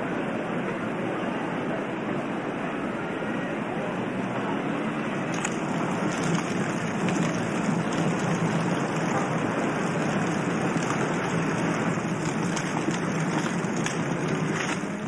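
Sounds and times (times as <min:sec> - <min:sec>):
steady rushing noise: 0:03.6 - 0:15.0.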